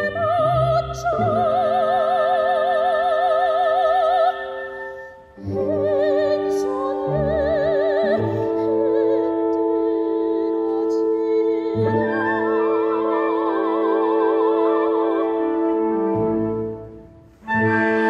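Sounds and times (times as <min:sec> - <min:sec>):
operatic soprano singing: 0:00.0 - 0:16.9
orchestral accompaniment: 0:00.0 - 0:18.0.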